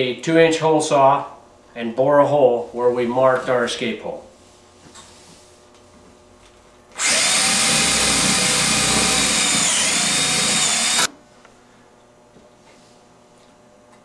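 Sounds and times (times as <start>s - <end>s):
power drill cutting through wood: 7.0s - 11.1s.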